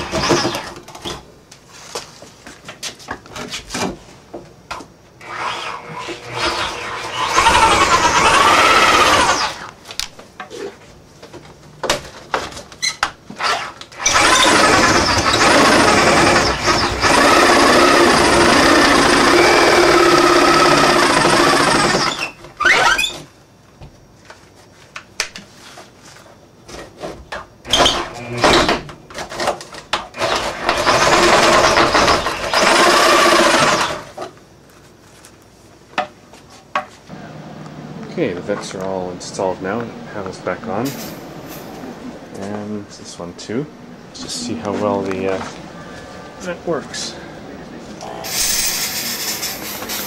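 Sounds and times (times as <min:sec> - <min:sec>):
power tool stopping: 0:05.2 - 0:09.7, 0:13.4 - 0:22.3, 0:30.2 - 0:34.1
rising and falling whir: 0:05.5 - 0:09.7.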